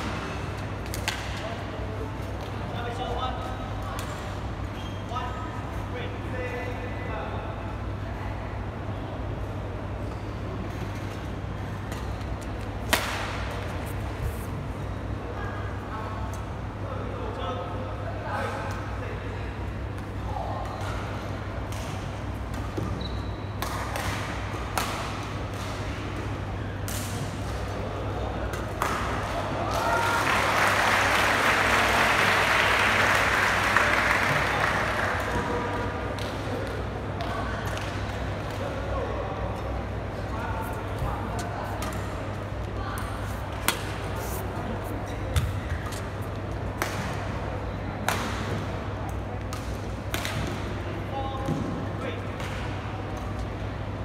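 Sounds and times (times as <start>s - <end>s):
background murmur: 0.0s - 54.0s
steady low hum: 0.0s - 54.0s
racket smacking shuttlecock: 0.8s - 1.4s, 11.9s - 13.6s
brief high squeak: 23.0s - 23.5s.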